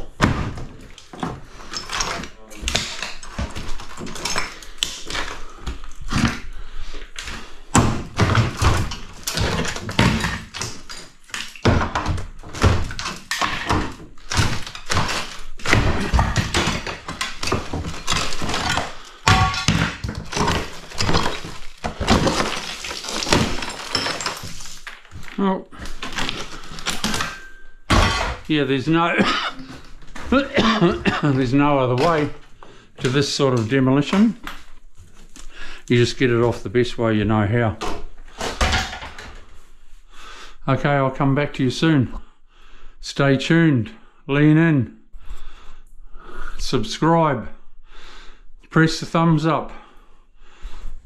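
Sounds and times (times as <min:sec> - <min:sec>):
broken tiles clattering down: 0:07.8 - 0:28.5, 0:38.5 - 0:39.4.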